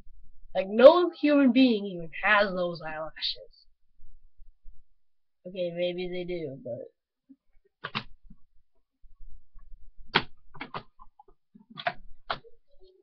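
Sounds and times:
makeup items clicking and knocking: 7.8 - 8.4, 9.6 - 12.5.

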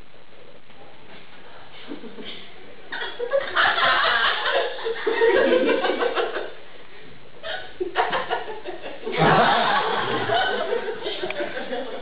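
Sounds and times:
people laughing: 1.9 - 6.6, 7.4 - 12.0.

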